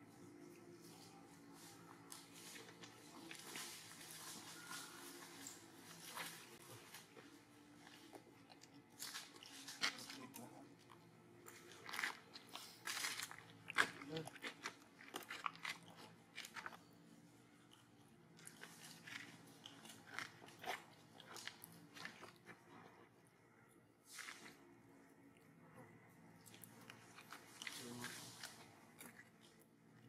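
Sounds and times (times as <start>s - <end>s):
monkeys crunching fruit: 0.2s - 30.0s.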